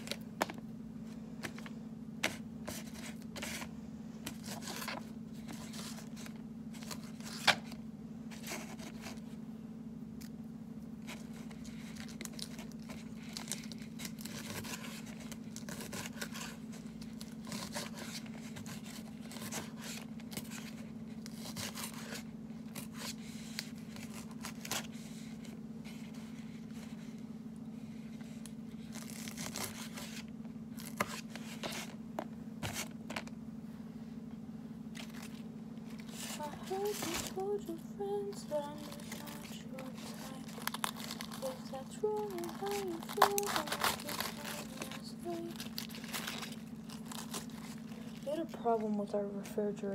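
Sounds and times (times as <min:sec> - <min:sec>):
lettuce tearing and crackling: 0:11.0 - 0:25.0, 0:28.8 - 0:31.3, 0:38.7 - 0:48.6.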